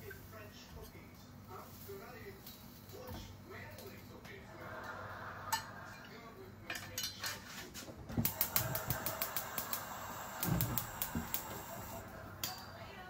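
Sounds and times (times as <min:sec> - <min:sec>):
gas burner catching: 0:08.1 - 0:12.8
gas igniter clicking: 0:08.2 - 0:12.6.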